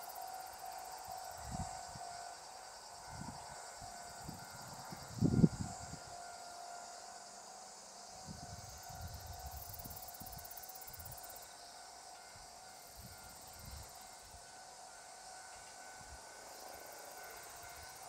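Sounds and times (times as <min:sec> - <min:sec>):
faint steady tone: 0:00.0 - 0:18.0
insects chirring: 0:00.0 - 0:18.0.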